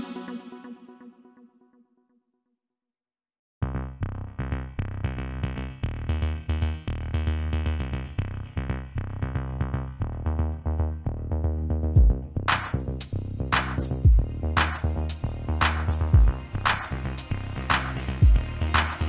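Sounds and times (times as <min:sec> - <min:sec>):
electronic music with synthesizer: 0:00.0 - 0:01.7, 0:09.3 - 0:19.0.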